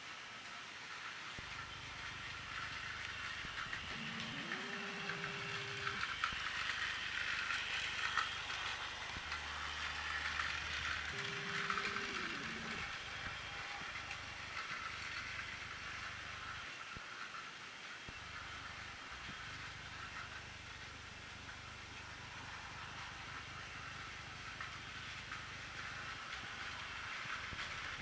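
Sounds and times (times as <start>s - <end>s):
toy train motors whirring: 0.0s - 28.0s
wheels clicking over track joints: 0.8s - 28.0s
gliding electronic tone: 3.9s - 6.0s, 11.1s - 12.9s.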